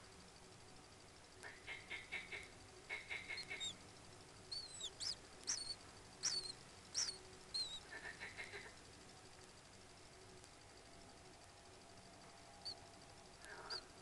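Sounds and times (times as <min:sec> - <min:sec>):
kingfisher calls: 0:02.2 - 0:03.8, 0:04.5 - 0:08.6.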